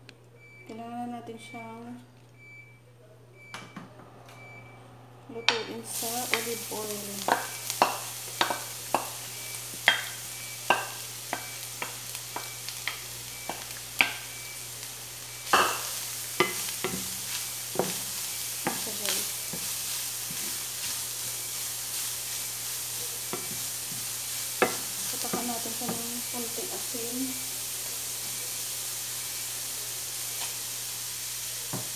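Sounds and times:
carrot sizzling in a frying pan: 5.4 - 31.9
wooden spoon knocking and scraping: 7.2 - 9.2, 9.8 - 14.2, 15.5 - 21.1, 23.3 - 26.0.

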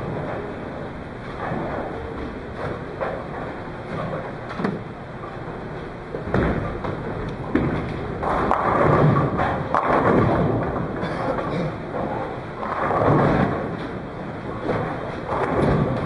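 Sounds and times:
balls rolling down wooden lanes: 0.0 - 11.0, 11.8 - 16.0
bowling pins clattering: 0.0 - 16.0
bowling ball thuds: 6.1 - 11.0, 11.7 - 16.0.

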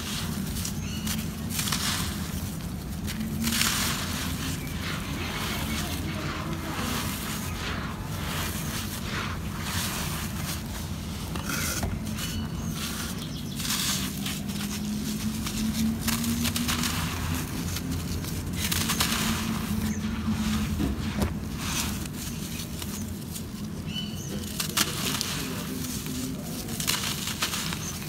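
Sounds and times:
soil trickling and crackling: 0.0 - 28.0.

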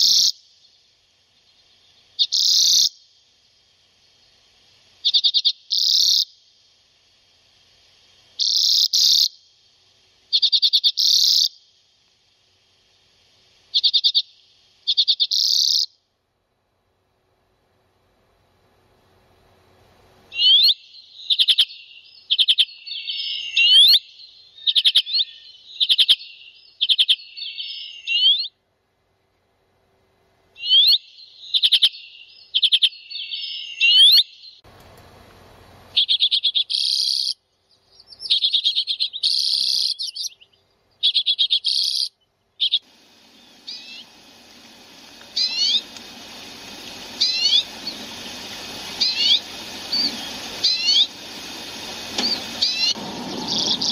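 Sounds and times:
rising whistled bird calls: 0.0 - 3.0, 5.0 - 6.3, 8.4 - 9.4, 10.3 - 11.6, 13.7 - 14.3, 14.9 - 15.9, 20.3 - 28.6, 30.6 - 34.6, 35.9 - 44.2, 45.3 - 53.9
faint hiss: 0.0 - 24.6, 41.6 - 53.9
birds chattering trills: 35.9 - 53.9.

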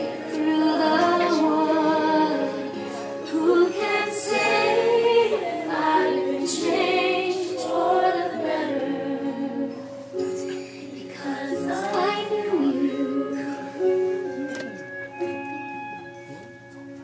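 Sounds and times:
group of young people singing: 0.0 - 10.3, 11.1 - 14.0.

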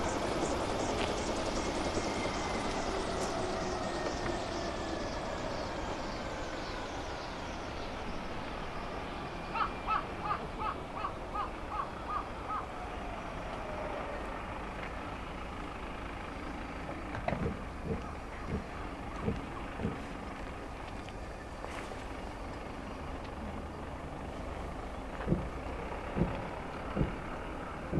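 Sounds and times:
helicopter whine winding down: 0.0 - 14.7
bird calling: 9.4 - 14.1
low thumps: 25.2 - 27.2.

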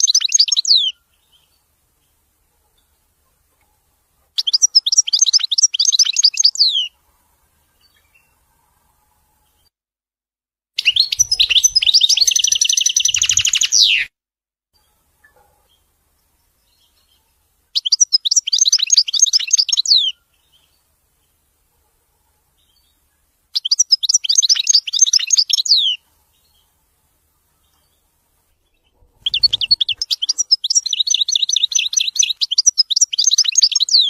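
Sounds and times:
finch singing: 0.0 - 2.2, 4.4 - 7.0, 10.8 - 14.1, 16.6 - 20.8, 23.6 - 26.7, 27.6 - 34.0.

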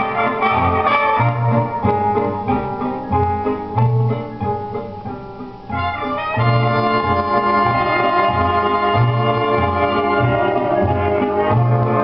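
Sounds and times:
organ music through speakers: 0.0 - 12.0.

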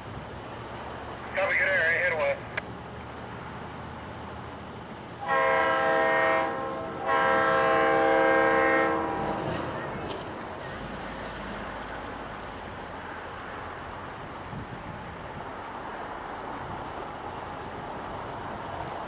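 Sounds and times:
locomotive air horn blasts: 5.2 - 10.4.

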